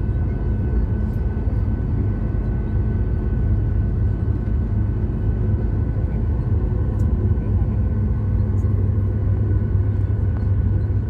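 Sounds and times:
airliner cabin rumble: 0:00.0 - 0:11.0
faint engine whine: 0:00.0 - 0:11.0.

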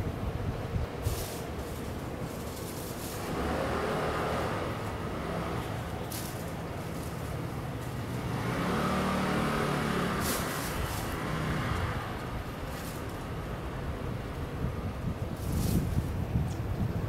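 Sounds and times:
hissy rustles: 0:00.0 - 0:17.0
road traffic rumble: 0:00.0 - 0:17.0
vehicle engine passing: 0:02.5 - 0:13.8.

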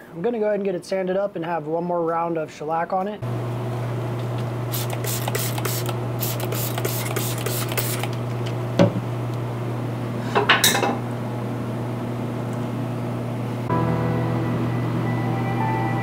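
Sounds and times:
spray bottle hissing: 0:04.7 - 0:08.1.

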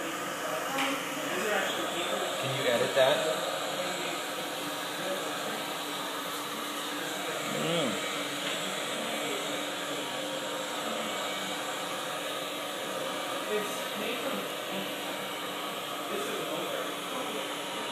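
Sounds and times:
faint voices: 0:06.6 - 0:11.8.

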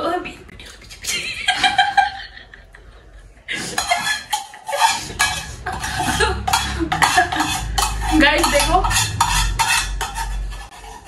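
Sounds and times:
metal spoon scraping a pot: 0:03.5 - 0:11.0.

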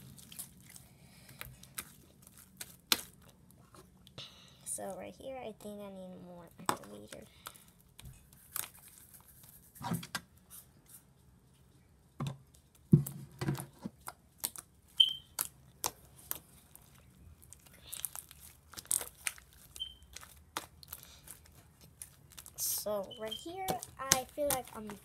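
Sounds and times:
slime crackling pops: 0:21.9 - 0:25.0.

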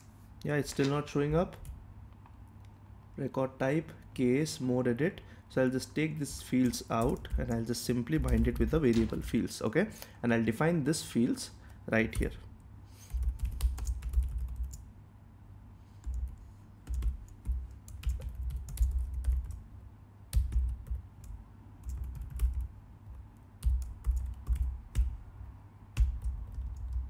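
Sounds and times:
typing on computer keyboard: 0:13.1 - 0:14.8, 0:16.0 - 0:19.6, 0:20.3 - 0:22.7, 0:23.6 - 0:25.2, 0:26.0 - 0:27.0.

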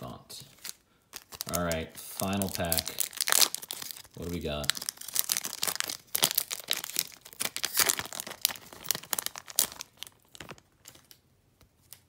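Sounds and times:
foil wrapper tearing and crinkling: 0:00.6 - 0:11.2.

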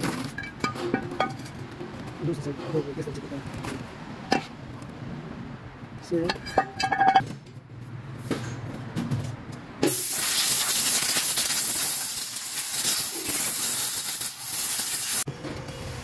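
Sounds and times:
compressed air blow gun hissing: 0:09.9 - 0:15.3.

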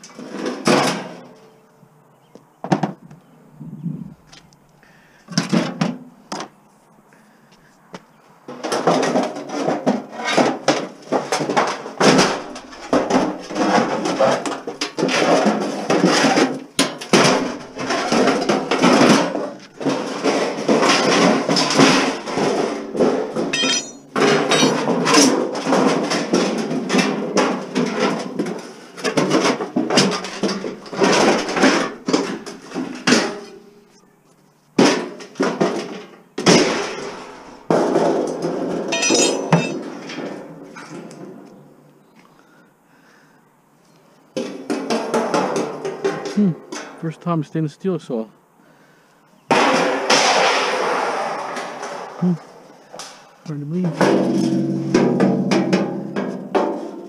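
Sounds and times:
metal clanking and knocking: 0:00.0 - 0:01.4, 0:08.5 - 0:33.7, 0:34.8 - 0:41.3, 0:53.6 - 0:57.0.

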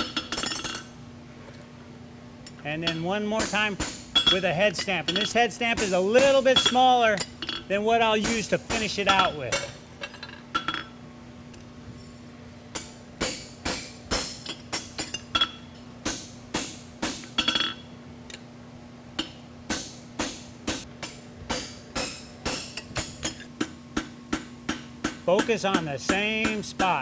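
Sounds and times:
hammer striking metal on anvil: 0:02.8 - 0:07.3, 0:08.2 - 0:09.8, 0:12.7 - 0:17.8, 0:19.2 - 0:27.0.

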